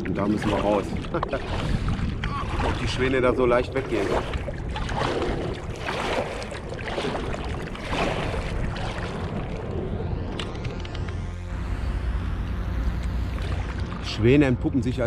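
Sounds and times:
paddle strokes splashing in water: 0.0s - 10.0s, 13.3s - 14.4s
wind rumble on microphone: 0.0s - 15.0s.

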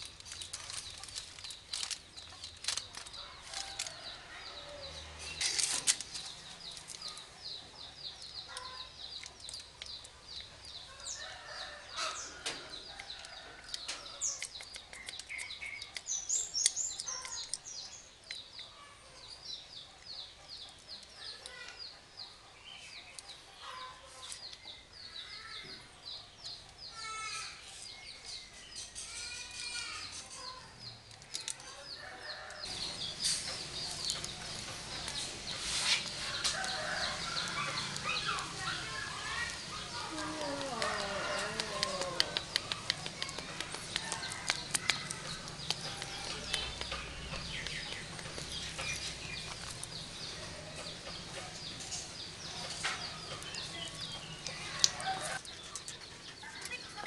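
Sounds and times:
birds chirping: 0.0s - 57.0s
sharp clicks and knocks: 40.6s - 50.1s.

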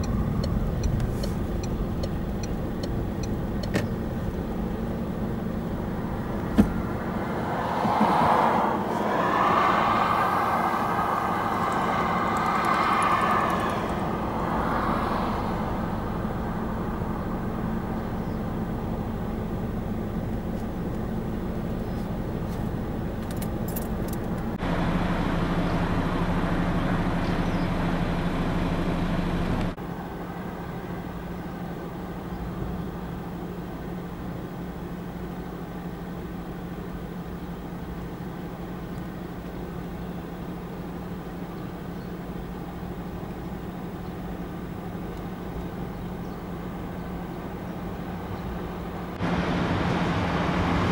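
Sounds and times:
lorry engine idling: 0.0s - 50.9s.

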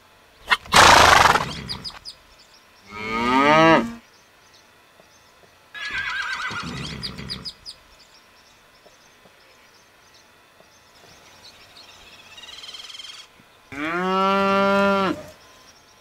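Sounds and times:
cow mooing: 2.9s - 4.0s, 13.7s - 15.3s.

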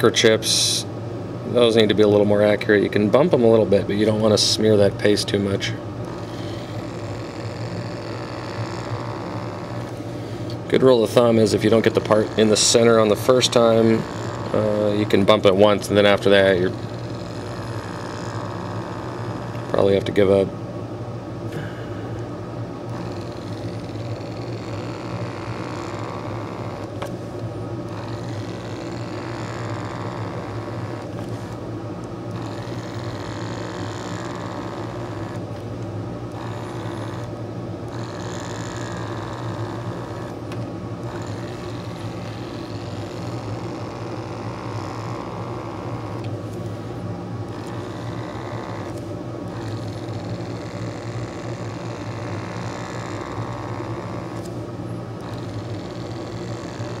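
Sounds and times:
small electric motor humming: 4.0s - 20.5s, 21.5s - 57.0s.

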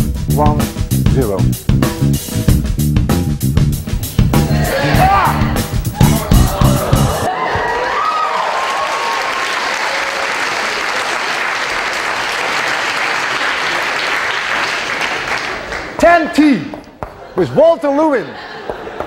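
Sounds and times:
audience applauding: 4.0s - 16.0s
voices calling out: 4.2s - 7.9s.

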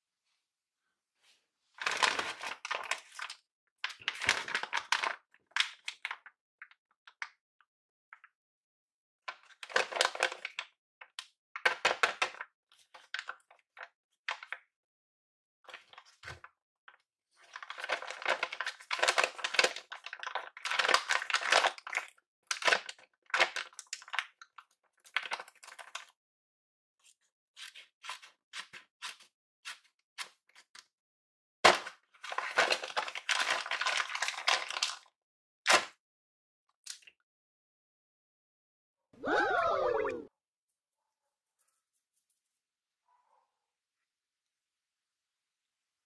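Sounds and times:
paper crinkling and rustling: 1.8s - 6.3s, 15.7s - 26.2s, 27.0s - 30.9s, 31.7s - 35.1s.

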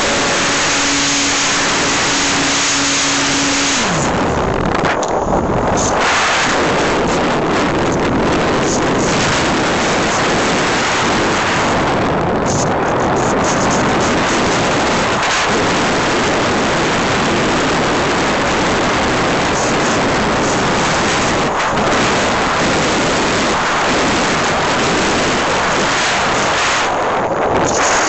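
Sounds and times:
wind rushing over microphone: 0.0s - 28.0s.

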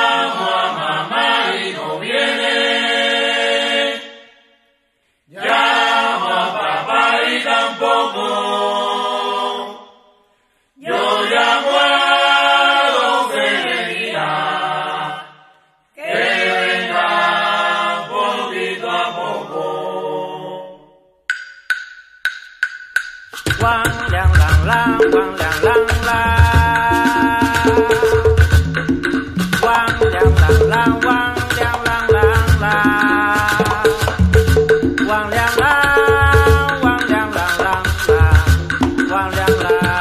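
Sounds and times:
group of voices singing: 0.0s - 4.5s, 5.3s - 10.2s, 10.8s - 21.1s, 23.6s - 40.0s
sharp percussion clicks: 21.3s - 40.0s.

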